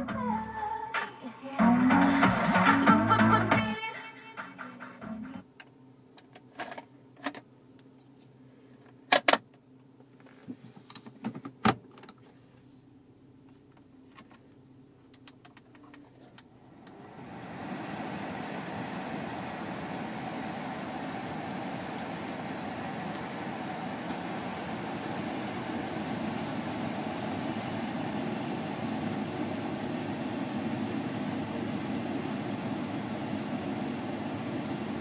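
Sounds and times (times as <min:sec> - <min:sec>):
car stereo music: 0:00.0 - 0:05.4, 0:17.4 - 0:31.3
blower fan rushing air: 0:16.5 - 0:35.0.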